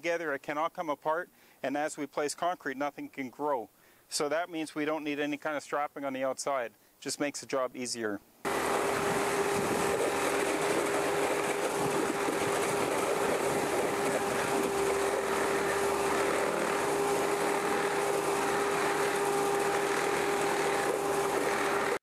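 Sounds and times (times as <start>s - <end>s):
concrete pump whining: 8.4s - 22.0s.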